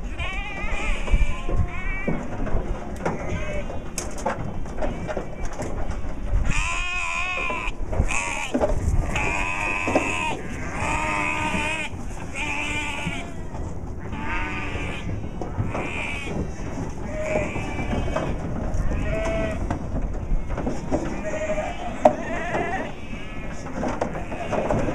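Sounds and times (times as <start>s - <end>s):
sheep bleating: 0.0s - 2.3s, 6.4s - 24.9s.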